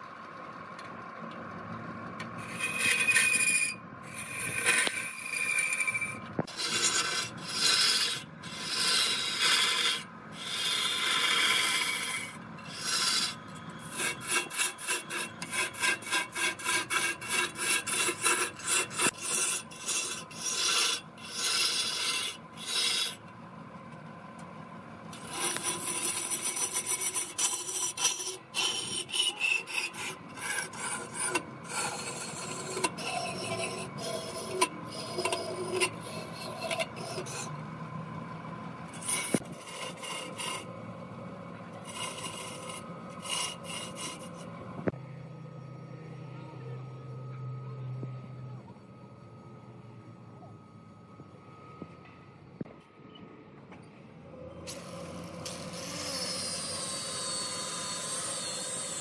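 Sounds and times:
lathe humming: 0:02.2 - 0:47.3, 0:54.7 - 0:59.0
rag rubbing on spinning log: 0:02.4 - 0:23.2, 0:25.2 - 0:37.6, 0:38.9 - 0:40.7, 0:41.8 - 0:44.9.

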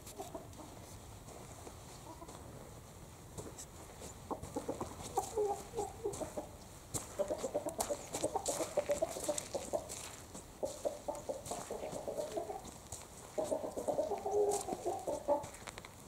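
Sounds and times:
chickens clucking: 0:00.0 - 0:01.0, 0:01.9 - 0:02.6, 0:04.0 - 0:15.8
light clicks and rustles: 0:15.5 - 0:16.0.

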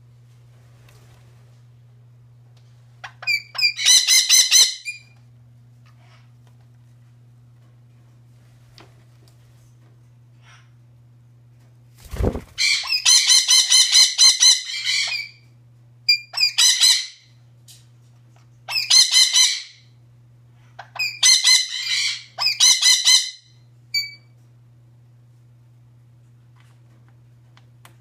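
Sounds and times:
parrot squawking: 0:03.1 - 0:05.0, 0:12.6 - 0:15.4, 0:16.1 - 0:17.3, 0:18.7 - 0:19.8, 0:20.8 - 0:24.2.

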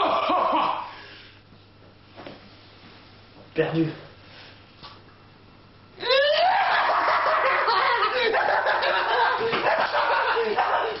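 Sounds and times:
loud laughter: 0:06.0 - 0:11.0.

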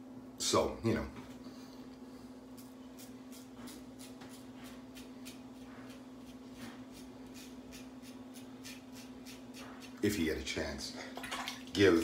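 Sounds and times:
razor scraping stubble: 0:02.5 - 0:10.2.

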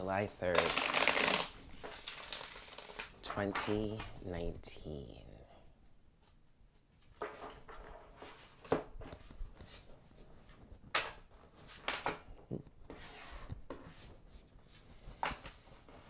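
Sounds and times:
cards being shuffled: 0:00.5 - 0:04.2.

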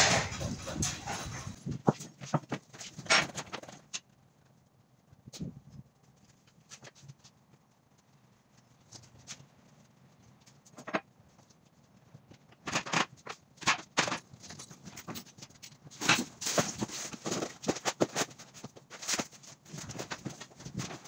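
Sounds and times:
knocks and clatter in trailer: 0:00.0 - 0:03.9
cardboard sheets handled: 0:15.9 - 0:21.0.

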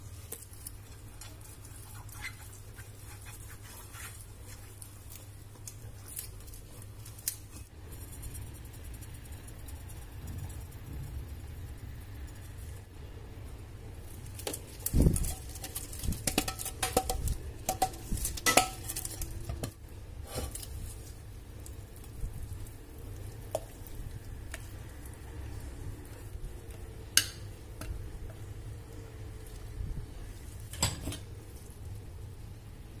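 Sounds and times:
spatula tapping: 0:15.2 - 0:19.8, 0:23.2 - 0:24.9, 0:26.1 - 0:28.4.

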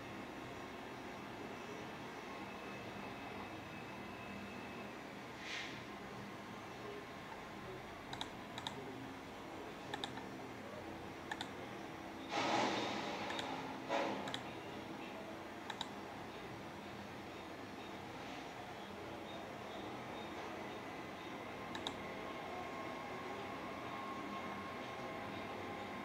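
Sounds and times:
brief bursts of noise: 0:12.2 - 0:14.5
computer mouse double clicks: 0:14.2 - 0:14.4.

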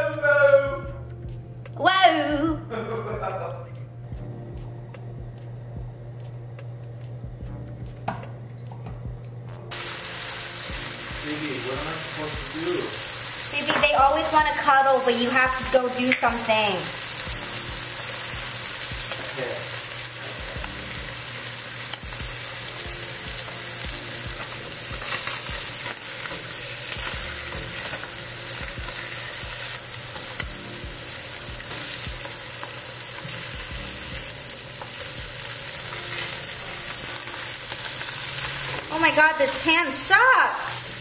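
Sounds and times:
fish fillets sizzling in oil: 0:09.7 - 0:41.0.

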